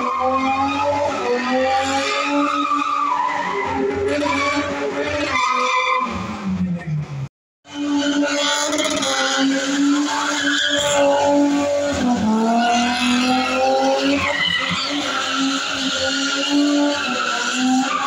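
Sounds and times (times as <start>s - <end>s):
car engine revving high: 7.8s - 14.3s.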